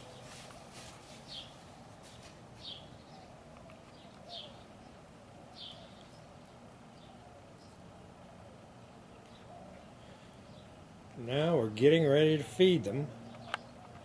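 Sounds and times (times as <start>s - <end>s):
bird chirping: 1.1s - 7.9s, 8.8s - 11.4s, 12.9s - 14.0s.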